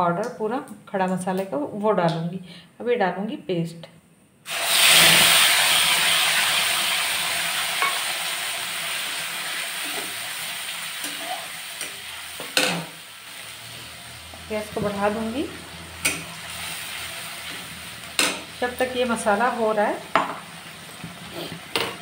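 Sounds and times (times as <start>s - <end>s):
paste sizzling in hot oil: 4.5s - 22.0s.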